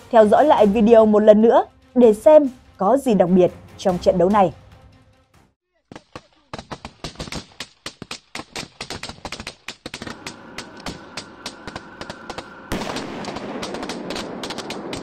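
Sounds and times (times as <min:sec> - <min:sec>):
rapid gunfire: 0:05.8 - 0:15.0.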